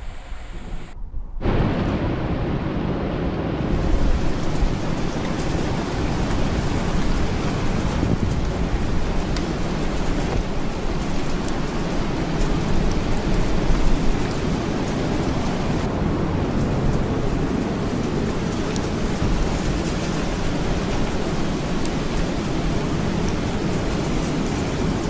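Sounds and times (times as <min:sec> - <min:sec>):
low rumble of thunder: 0:00.0 - 0:25.0
steady rain: 0:00.0 - 0:25.0
raindrop ticks: 0:03.8 - 0:25.0.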